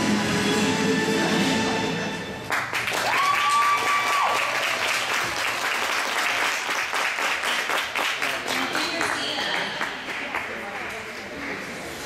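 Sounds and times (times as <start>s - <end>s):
music: 0.0s - 2.6s
audience applause: 2.5s - 11.7s.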